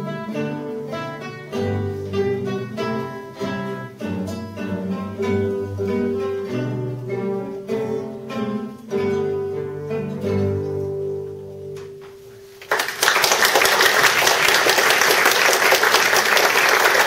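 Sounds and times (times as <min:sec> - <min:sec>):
audience applause: 0:12.6 - 0:17.0.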